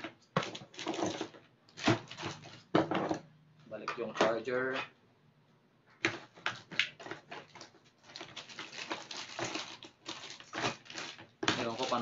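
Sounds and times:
plastic bag crinkling: 0.4 - 2.7, 7.0 - 12.0.

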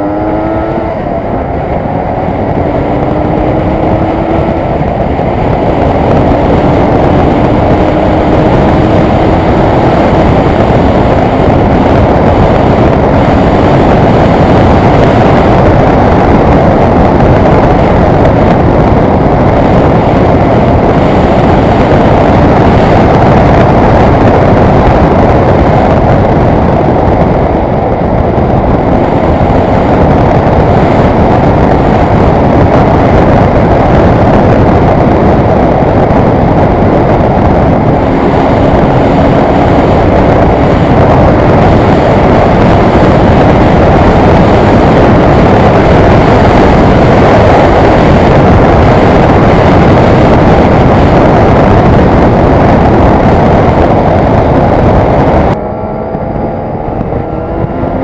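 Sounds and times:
motorcycle engine: 0.0 - 58.0
wind rushing on microphone: 0.0 - 58.0.

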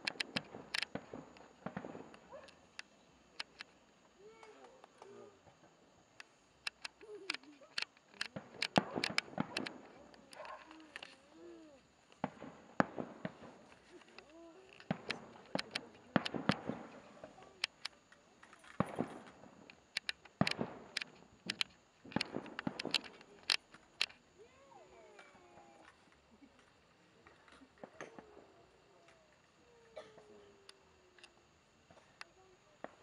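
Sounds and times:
firework shells bursting: 0.0 - 24.3.

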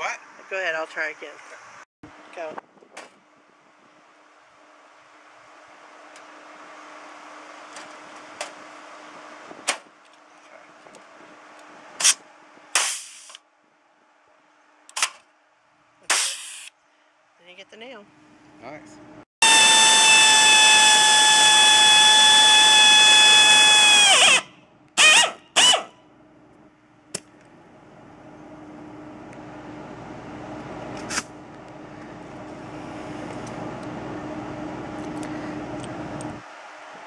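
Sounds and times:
power drill whining through metal: 19.4 - 25.9.

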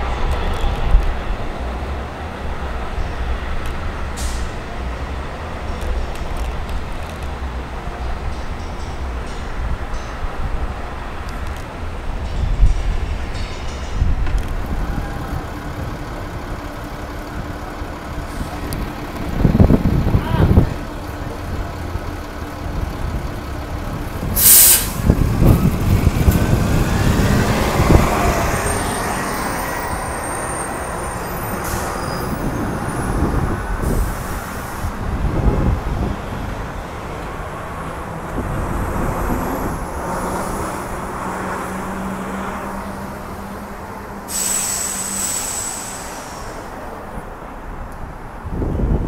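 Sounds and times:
bus whine pulling away: 0.0 - 49.0
diesel buses and traffic: 0.0 - 49.0
air brake hiss: 4.2 - 4.6, 24.4 - 25.0, 44.2 - 46.8.

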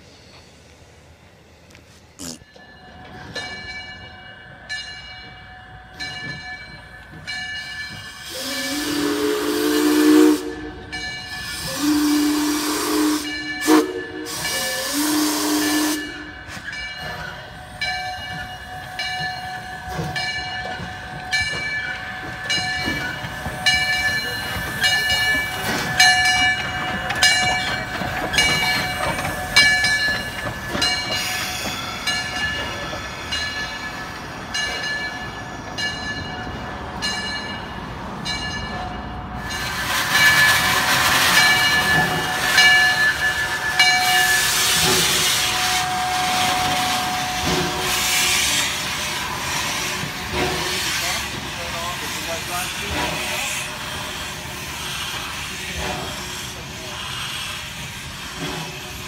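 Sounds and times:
steam hissing: 7.2 - 34.0, 39.4 - 59.0
steam locomotive whistle blasts: 8.0 - 21.8, 39.4 - 49.9
bell ringing: 41.4 - 44.6.

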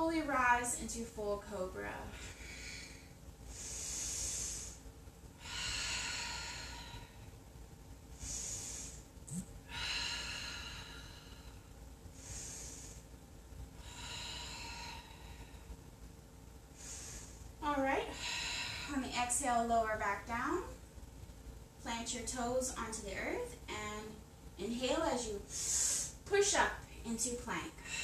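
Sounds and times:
woman breathing deeply: 2.1 - 15.9, 16.7 - 19.1, 25.5 - 26.2, 27.8 - 28.0.

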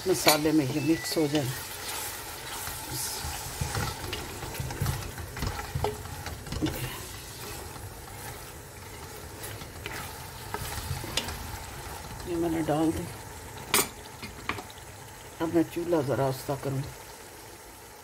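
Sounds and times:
light sizzle: 0.0 - 18.0
spatula scraping a pot: 1.0 - 12.0.

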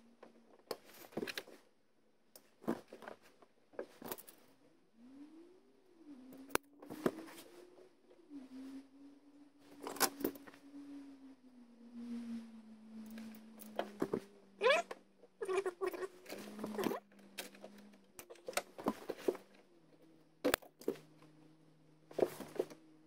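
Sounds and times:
wires and connectors rustling: 0.3 - 1.7, 13.0 - 23.0
faint wavering low hum: 3.7 - 23.0.

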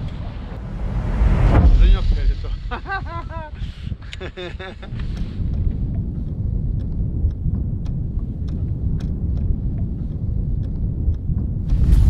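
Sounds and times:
low wind rumble: 0.0 - 12.0
small clicks and ticks: 4.8 - 12.0.

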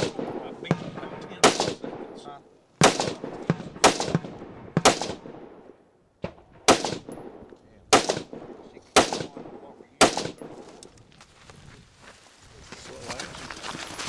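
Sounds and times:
rifle shots with echo: 0.0 - 10.8.

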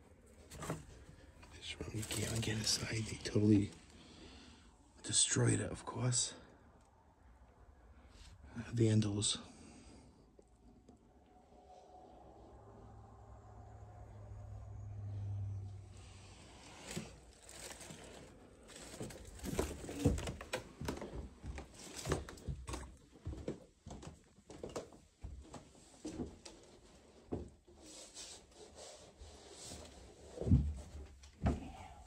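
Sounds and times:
knocks and rustles: 16.8 - 27.6, 30.3 - 31.9.

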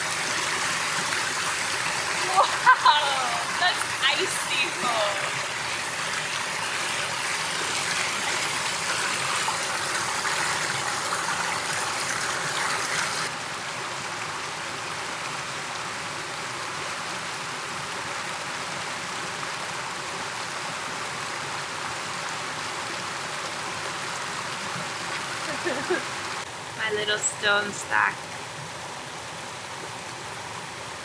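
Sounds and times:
river water flowing: 0.0 - 31.0.

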